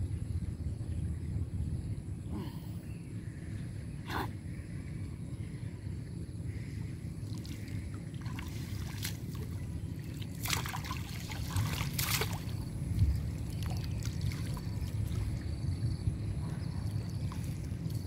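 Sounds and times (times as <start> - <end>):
low rumble: 0.0 - 18.0
water splashing and dripping: 7.2 - 15.5.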